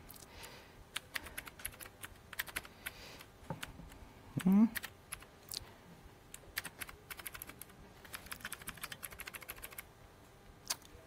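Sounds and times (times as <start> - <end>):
laptop keyboard keys clicking: 0.9 - 3.0, 6.4 - 9.8.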